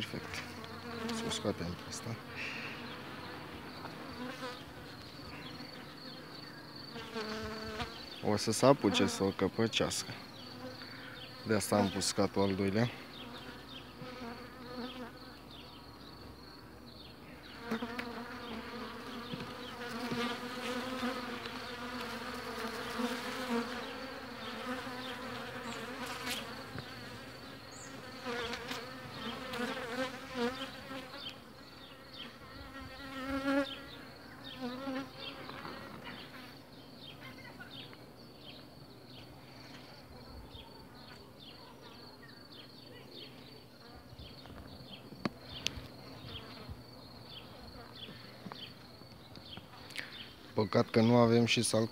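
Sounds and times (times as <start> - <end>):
honey bees buzzing: 0.0 - 37.8.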